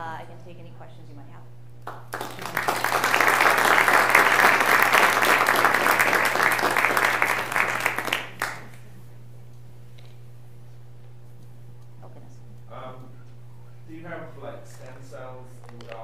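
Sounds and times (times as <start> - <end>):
audience applauding: 1.9 - 8.8.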